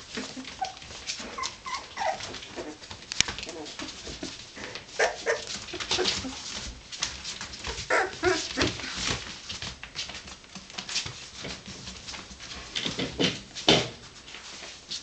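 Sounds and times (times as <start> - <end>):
paws scratching on blanket: 0.0 - 15.0
puppies whimpering: 0.1 - 4.2, 4.9 - 6.5, 7.8 - 8.8.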